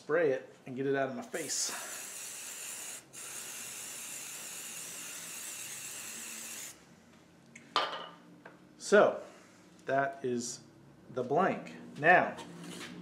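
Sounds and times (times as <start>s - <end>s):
aerosol spray hissing: 1.4s - 6.8s.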